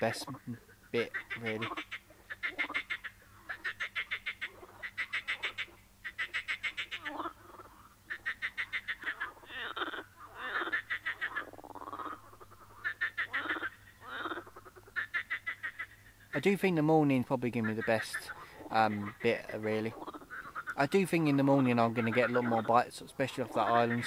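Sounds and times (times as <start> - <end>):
frogs croaking: 0.0 - 24.0
lower sliding frog calls: 0.0 - 24.0.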